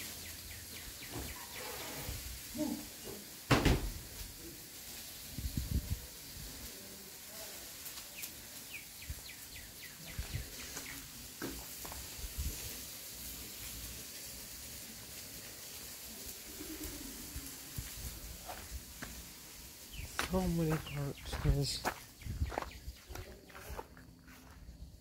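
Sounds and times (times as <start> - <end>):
steady hiss: 0.0 - 25.0
bird chirping: 0.1 - 2.0, 8.2 - 11.1, 19.9 - 23.7.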